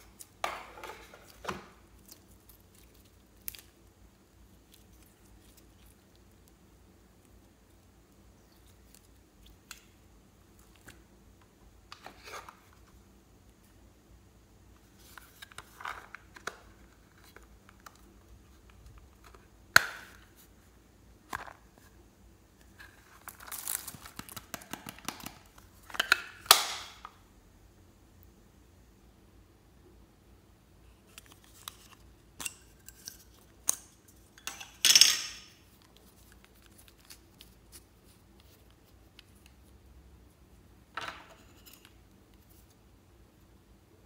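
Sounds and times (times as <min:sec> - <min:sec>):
crinkling rustle: 0:35.6 - 0:39.7.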